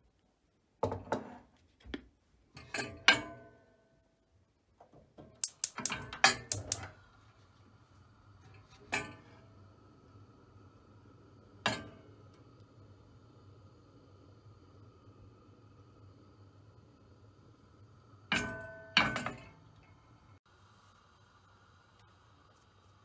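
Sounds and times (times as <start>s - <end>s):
faint steady hum: 5.4s - 23.0s
cookware clanking against stove: 18.3s - 19.6s.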